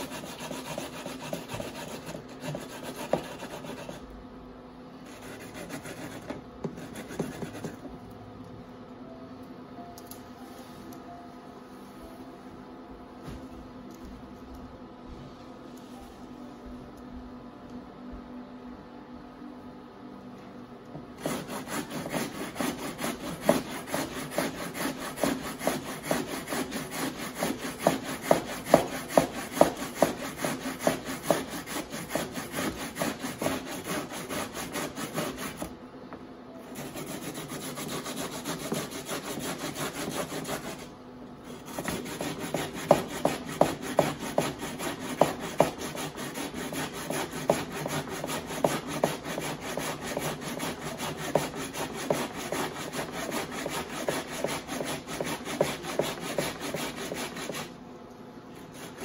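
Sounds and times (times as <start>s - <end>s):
potatoes grated on wire grater: 21.2s - 35.6s.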